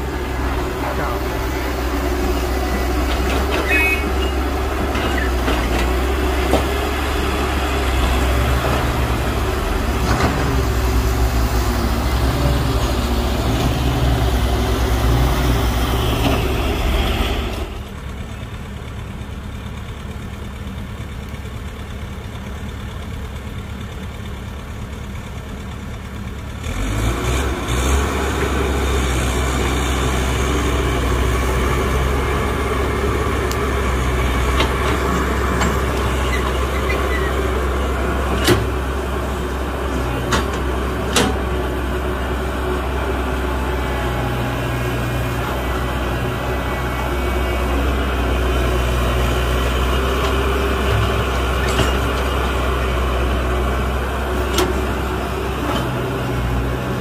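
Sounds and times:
diesel engine of earthmoving machinery: 0:00.0 - 0:57.0.

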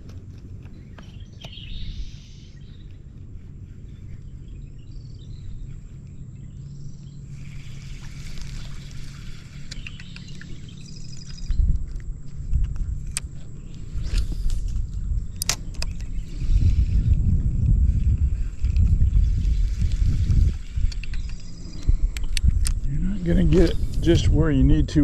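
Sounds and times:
insect calls: 0:00.0 - 0:24.3
steady low hum: 0:00.0 - 0:25.0
faint bird calls: 0:00.6 - 0:17.4, 0:20.5 - 0:24.0.

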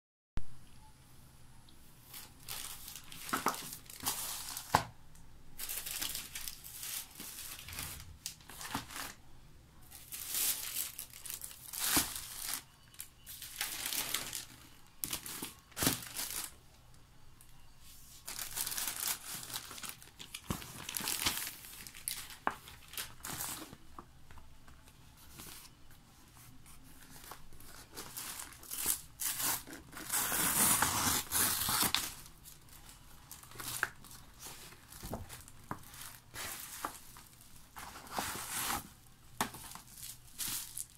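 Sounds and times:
plastic bags crinkling: 0:02.1 - 0:04.9, 0:05.6 - 0:09.2, 0:09.9 - 0:16.6, 0:18.2 - 0:24.1, 0:27.0 - 0:40.9
envelope tearing open: 0:28.4 - 0:32.3.

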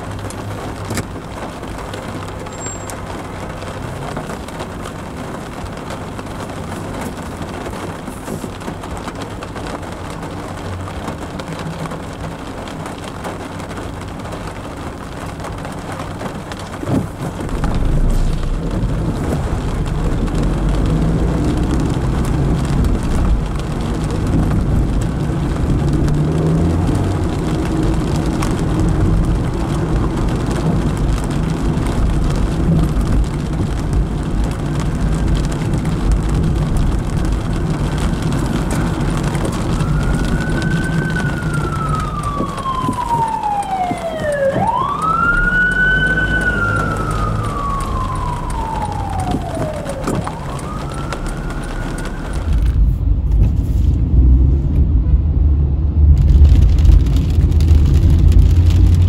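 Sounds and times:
car driving on wet streets: 0:00.0 - 0:59.0
emergency siren wailing: 0:37.0 - 0:52.8.

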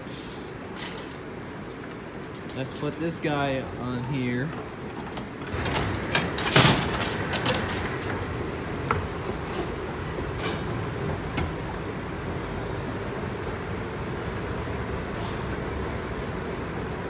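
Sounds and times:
escalator mechanical running noise: 0:00.0 - 0:17.0
wire shopping cart rattling: 0:00.7 - 0:01.6, 0:02.2 - 0:11.0.

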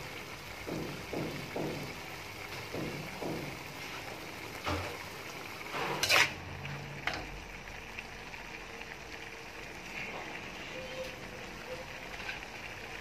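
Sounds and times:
squid sizzling in a wok: 0:00.0 - 0:13.0
metal spatula scraping a pan: 0:05.6 - 0:07.3, 0:09.9 - 0:12.6.

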